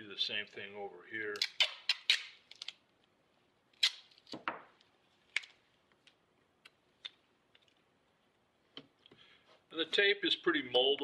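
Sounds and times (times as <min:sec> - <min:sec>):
tape torn from roll: 0:01.3 - 0:02.8, 0:03.8 - 0:04.4.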